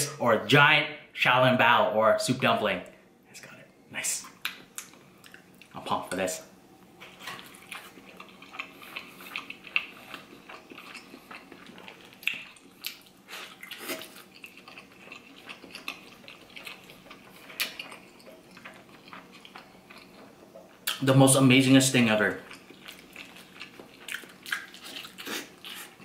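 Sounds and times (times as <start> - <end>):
person chewing with wet smacks: 4.2 - 5.8, 7.0 - 21.0, 22.4 - 26.0.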